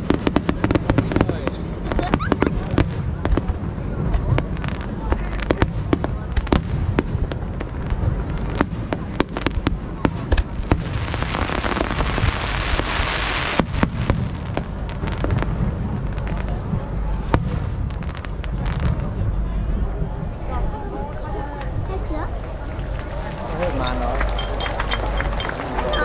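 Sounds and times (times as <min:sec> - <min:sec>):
hissing crackle: 0:00.0 - 0:19.2
fireworks bangs and pops: 0:00.0 - 0:19.9, 0:21.1 - 0:26.0
low rumble: 0:13.7 - 0:26.0.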